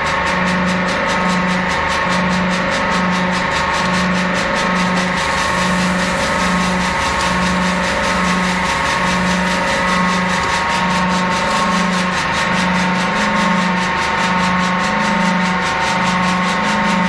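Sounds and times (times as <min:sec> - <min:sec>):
bag packing machine running: 0:00.0 - 0:17.0
high machine whine: 0:00.0 - 0:17.0
machinery noise: 0:00.0 - 0:17.0
pulsing low hum: 0:00.0 - 0:17.0.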